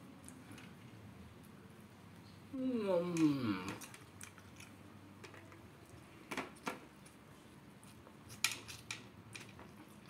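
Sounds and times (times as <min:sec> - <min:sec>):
man chewing food: 0:03.7 - 0:05.2.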